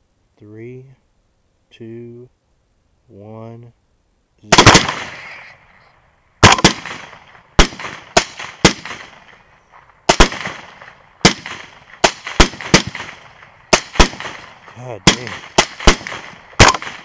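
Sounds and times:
rifle shots echoing: 4.5 - 5.6, 6.4 - 17.0.

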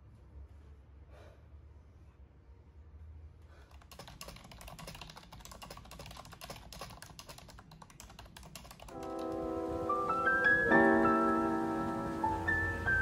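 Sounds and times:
fast typing on keyboard: 3.7 - 9.5
piano music: 8.8 - 13.0.

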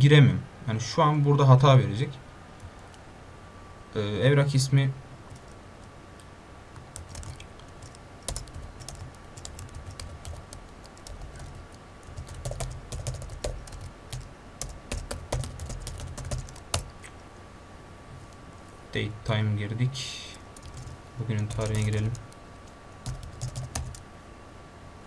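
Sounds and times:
keyboard typing clicks: 7.0 - 16.9, 20.6 - 24.0.

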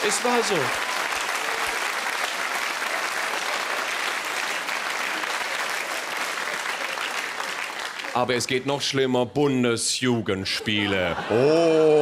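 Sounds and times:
audience applauding: 0.0 - 8.6
audience laughter: 10.5 - 12.0.

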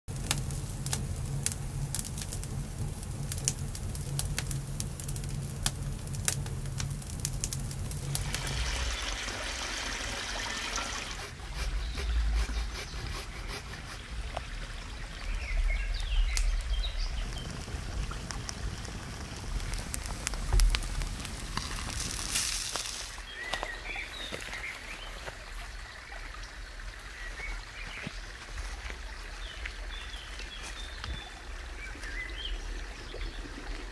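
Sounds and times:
sharp crackles and clicks: 0.1 - 9.0, 15.2 - 24.8
low steady hum: 0.1 - 33.9
hiss: 17.7 - 23.2.

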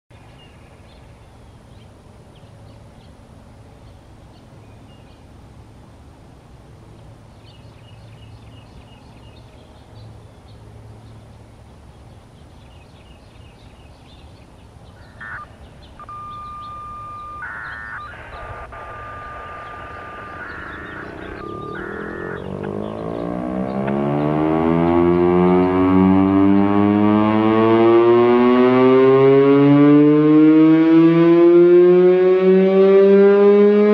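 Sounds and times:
low background hum: 0.1 - 26.8
small birds chirping: 7.2 - 25.9
radio scanner crackling: 15.1 - 23.0
steady beep tone: 15.2 - 24.4.

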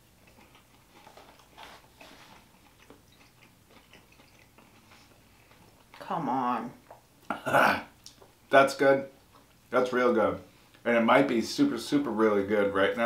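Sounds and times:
people chewing: 0.0 - 6.0, 6.8 - 8.4, 9.2 - 9.6.

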